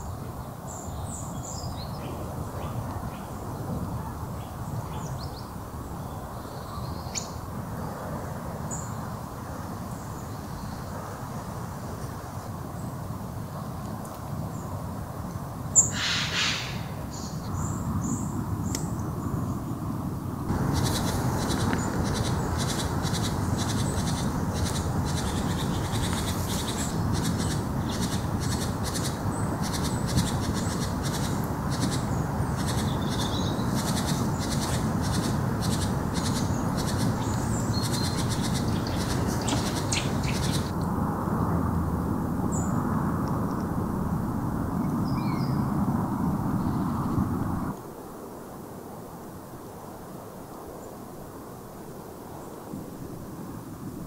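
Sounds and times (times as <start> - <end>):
low woodland rush: 0.0 - 54.0
birds calling and chirping: 15.7 - 19.7, 20.5 - 40.7.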